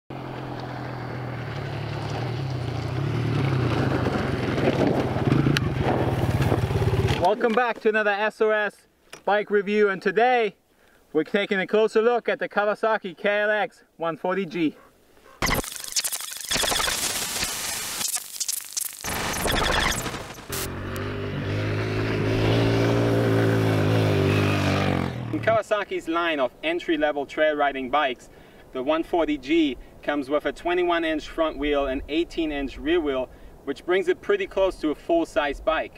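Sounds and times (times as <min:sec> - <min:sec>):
dirt bike engine running: 0:00.6 - 0:07.2, 0:18.0 - 0:25.5
burst of noise: 0:15.4 - 0:20.8.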